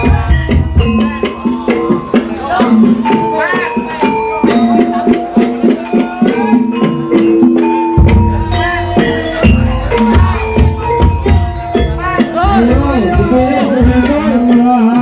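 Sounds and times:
deep low beat: 4.5s - 15.0s.

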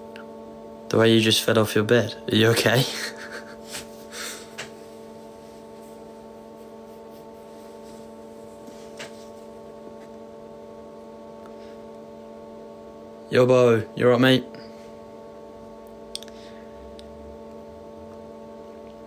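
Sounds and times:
steady background hum: 0.0s - 19.0s.

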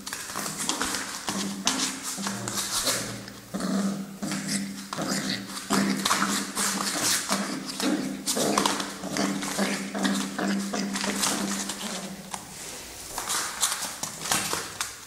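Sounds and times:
dog taps and scuffling: 5.6s - 12.5s.

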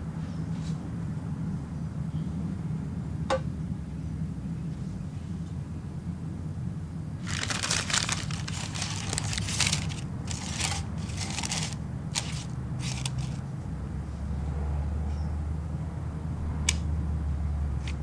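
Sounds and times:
baking paper crinkling: 7.2s - 13.4s.

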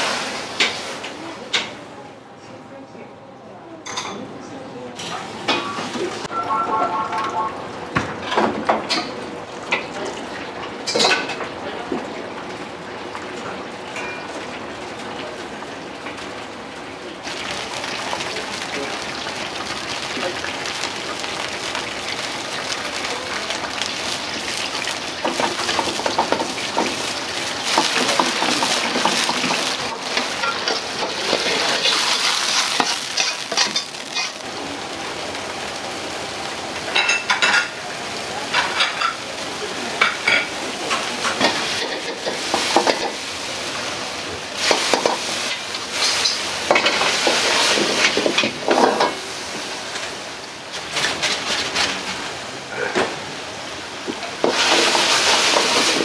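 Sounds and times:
meat sizzling in hot oil: 17.2s - 52.4s, 53.3s - 56.0s
ladle clanking and scraping wok: 22.5s - 34.4s, 40.0s - 43.3s, 44.6s - 49.7s, 54.2s - 56.0s.

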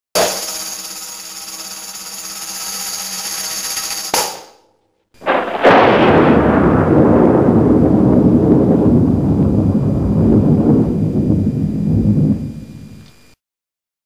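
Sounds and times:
thunder crack and low rumble: 5.2s - 13.0s.

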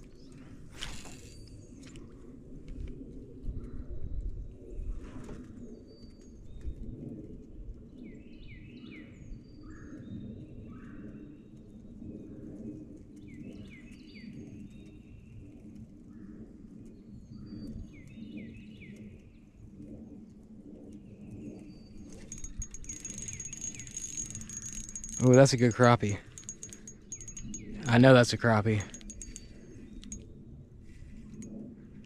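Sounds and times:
songbird singing: 21.5s - 30.2s.

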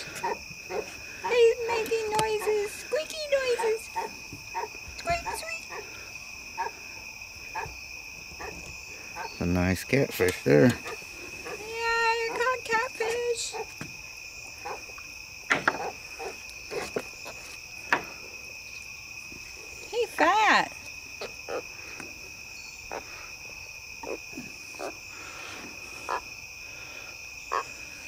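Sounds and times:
crickets chorus: 0.0s - 28.0s
clicks and knocks on wooden dock: 15.5s - 16.0s.

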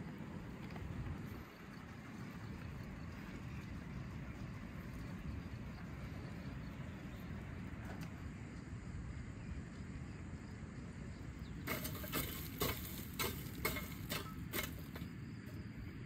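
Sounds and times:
shovel scraping through charcoal: 11.7s - 15.0s.

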